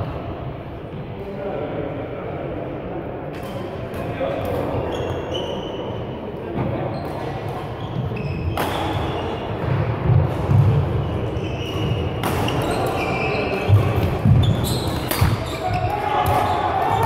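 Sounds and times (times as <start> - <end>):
shoe squeaks: 4.9 - 6.0, 6.9 - 9.5, 11.0 - 17.0
racket hitting shuttlecock: 8.5 - 10.9, 11.7 - 13.0, 13.7 - 16.6.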